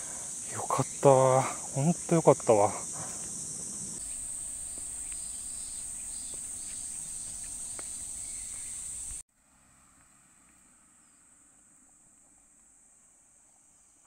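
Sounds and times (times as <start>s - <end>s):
insect chorus shrilling: 0.0s - 9.2s
faint hiss: 0.0s - 14.0s.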